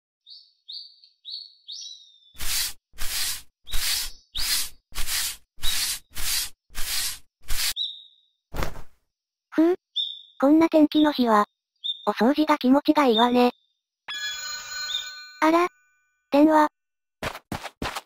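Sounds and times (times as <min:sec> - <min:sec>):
small bird chirping: 0:00.2 - 0:04.8, 0:05.6 - 0:06.4, 0:07.5 - 0:08.4, 0:09.8 - 0:11.2, 0:11.8 - 0:13.8
broom sweeping: 0:02.4 - 0:07.8.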